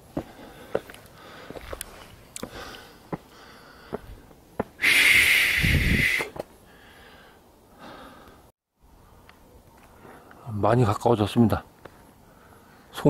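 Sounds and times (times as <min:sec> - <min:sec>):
footsteps on rock: 0:00.1 - 0:04.8
faint breathing: 0:00.1 - 0:09.3, 0:11.9 - 0:12.9
loud breath through nose: 0:04.8 - 0:08.4.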